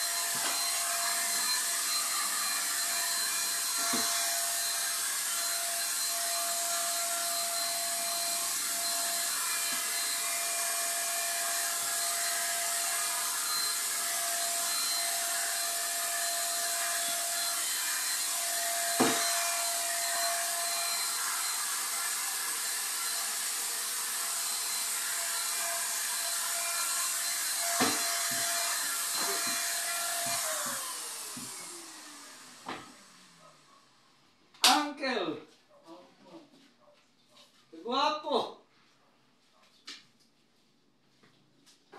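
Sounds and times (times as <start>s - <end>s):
paint sprayer hissing and whining: 0.0s - 33.4s.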